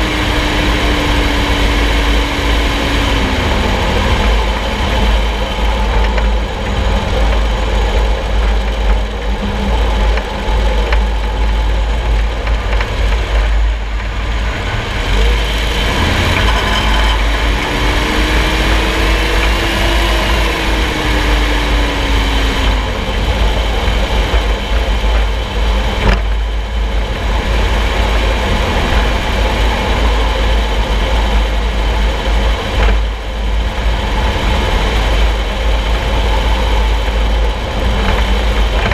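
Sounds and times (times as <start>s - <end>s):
vehicle road and driveline rumble: 0.0s - 38.9s.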